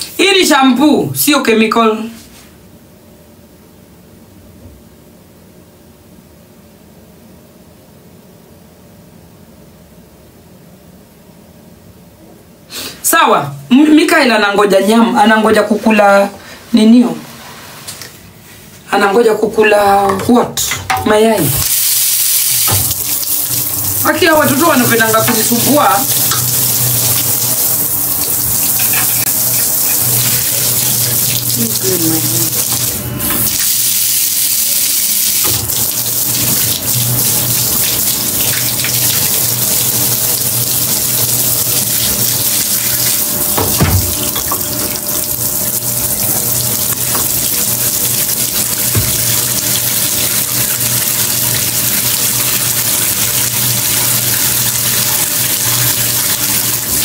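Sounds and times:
shower water spraying into tub: 21.6s - 57.0s
knock: 43.6s - 44.1s.

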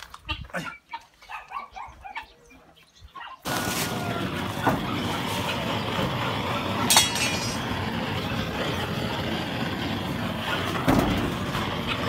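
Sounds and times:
gas torch hissing: 3.4s - 12.0s.

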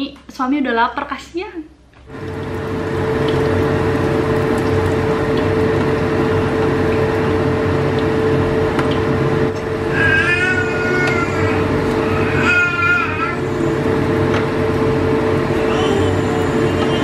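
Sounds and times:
exhaust fan humming: 0.0s - 17.0s
food frying in a pan: 2.2s - 9.9s.

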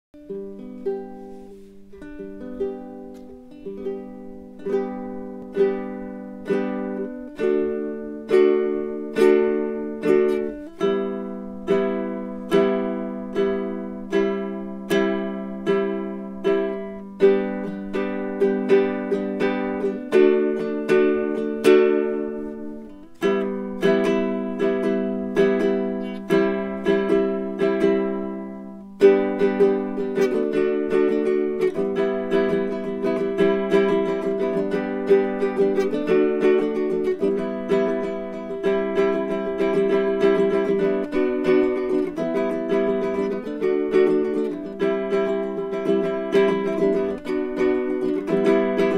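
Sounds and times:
ukulele plucked notes and chords: 0.2s - 48.9s.

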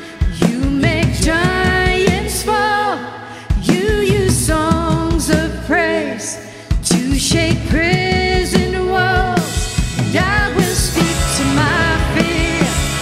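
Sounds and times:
woman singing: 0.0s - 13.0s
acoustic and electric guitar: 8.9s - 13.0s.

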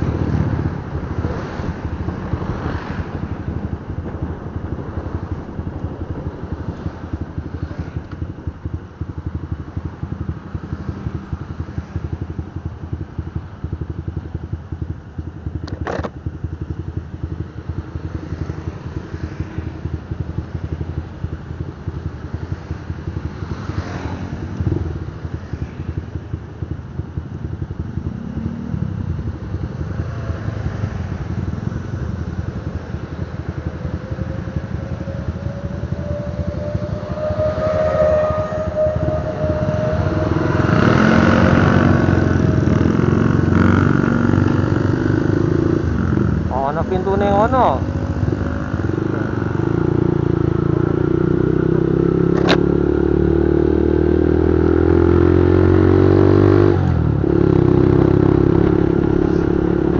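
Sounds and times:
motorcycle engine: 0.0s - 59.9s
other motorbikes: 0.0s - 59.9s
wind rumble on microphone: 0.0s - 59.9s
siren wailing: 32.6s - 45.0s.

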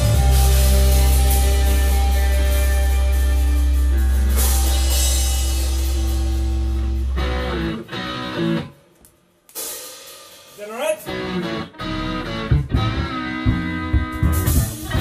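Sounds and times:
live rock band: 0.0s - 8.8s, 9.5s - 15.0s
short guitar notes: 10.6s - 15.0s.

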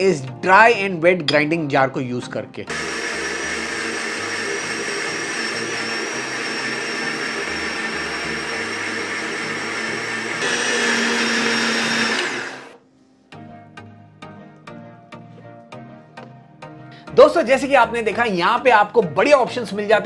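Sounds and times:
mixer grinder whining: 2.7s - 12.8s.

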